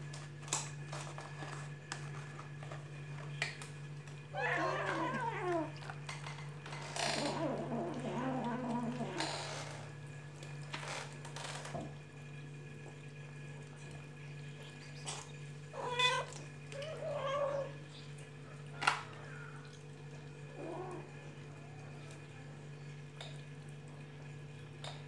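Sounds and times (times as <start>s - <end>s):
cat meowing: 4.3s - 5.8s, 15.8s - 17.8s.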